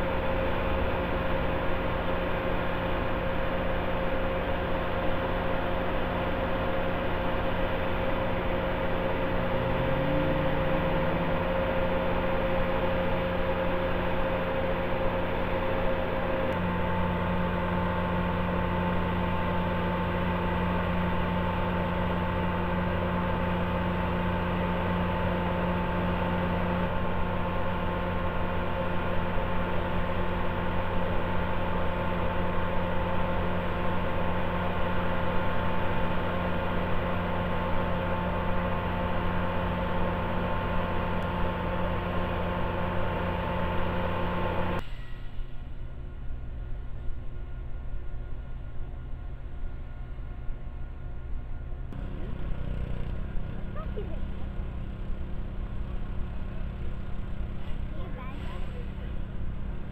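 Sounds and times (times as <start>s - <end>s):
diesel engines humming: 0.0s - 59.9s.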